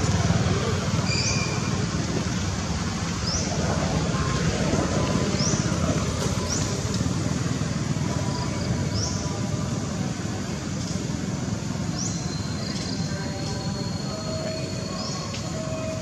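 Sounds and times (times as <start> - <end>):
low rumble and hiss: 0.0 - 16.0.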